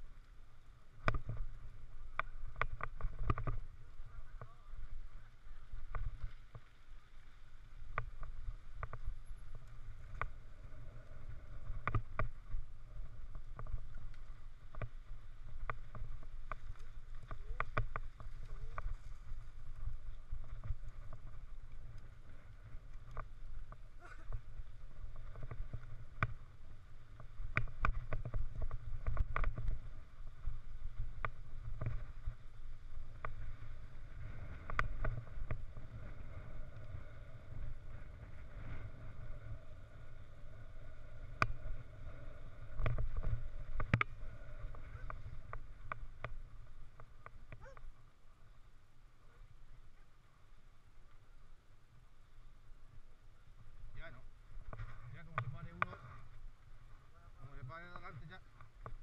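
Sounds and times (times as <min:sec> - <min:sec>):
wind rumbling on microphone: 0:00.0 - 0:59.0.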